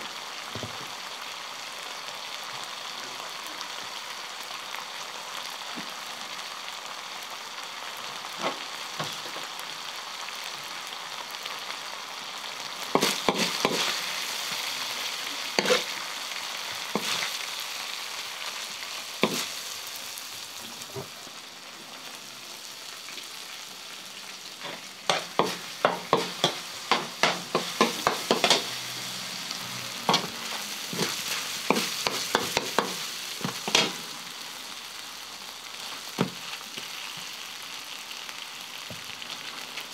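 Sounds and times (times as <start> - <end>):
meat sizzling on a griddle: 0.0 - 39.9
metal spoon scraping a pan: 15.6 - 15.9, 24.6 - 29.0.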